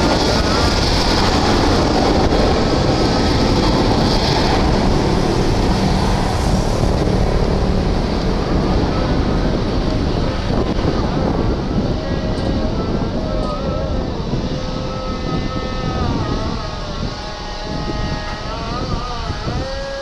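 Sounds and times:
jet engines roaring: 0.0s - 20.0s.

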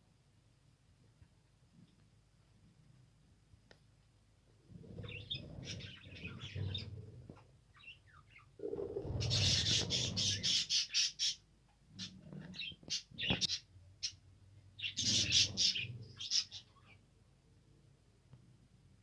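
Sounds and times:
budgerigars chattering: 9.2s - 11.4s, 14.8s - 16.7s.

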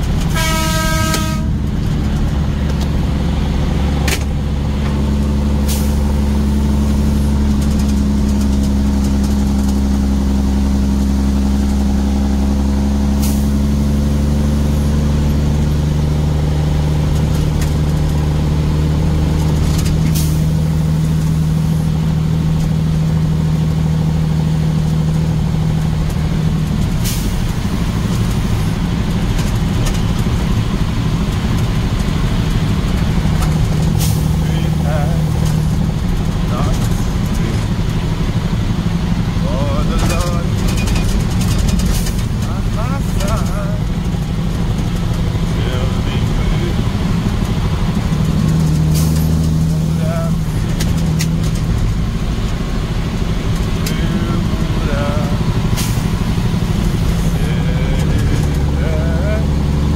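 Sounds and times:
vehicle engine running: 0.0s - 59.9s
horn toot: 0.3s - 1.6s.

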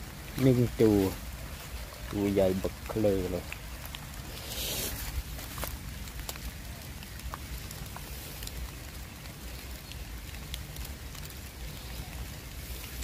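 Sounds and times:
small ticks and crackles: 0.0s - 13.0s
steady outdoor hiss: 0.0s - 13.0s.

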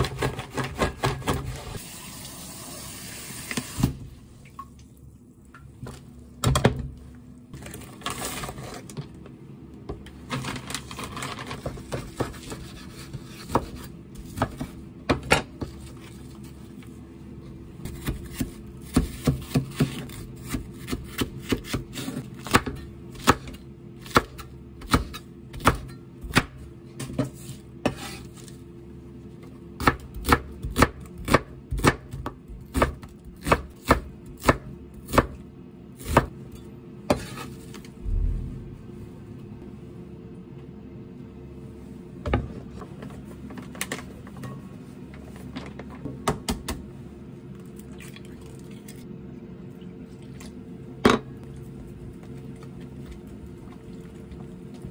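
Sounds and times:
knife chopping on wooden board: 17.9s - 26.6s.

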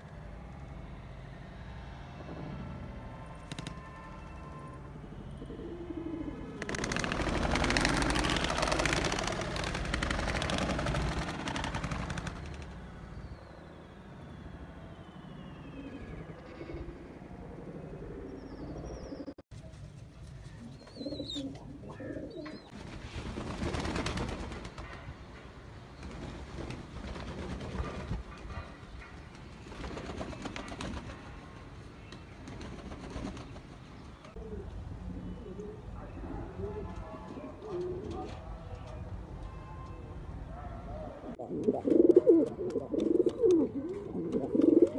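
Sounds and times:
pigeon wings flapping: 3.5s - 3.8s, 6.6s - 12.8s, 22.8s - 24.9s, 26.0s - 28.3s, 29.4s - 31.3s, 32.4s - 33.7s
pigeons cooing: 5.4s - 6.6s, 20.6s - 22.7s, 40.9s - 44.9s.

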